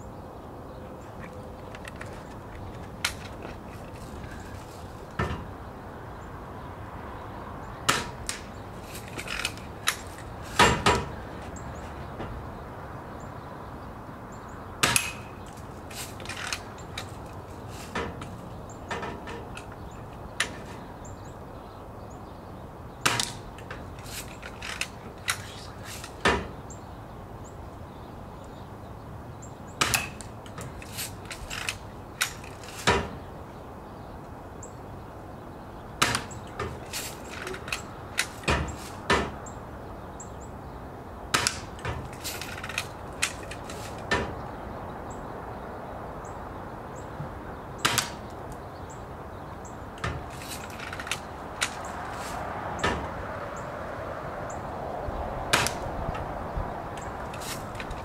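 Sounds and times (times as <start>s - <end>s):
pellets striking wood and plastic: 7.9s - 11.2s, 14.8s - 19.8s, 23.0s - 26.6s, 29.8s - 33.3s, 36.0s - 39.4s, 41.3s - 44.4s, 47.8s - 48.4s, 50.0s - 53.2s, 55.5s - 55.9s.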